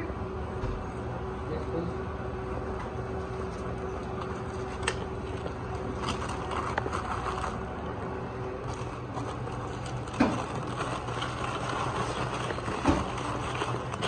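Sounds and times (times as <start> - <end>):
equipment hum: 0.0 - 14.0
gloves and paper rustling: 3.4 - 7.9, 8.6 - 14.0.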